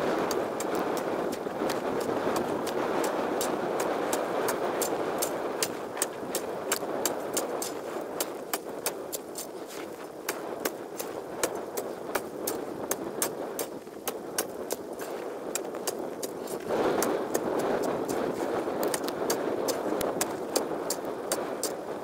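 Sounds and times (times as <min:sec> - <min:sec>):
wind rushing: 0:00.0 - 0:22.0.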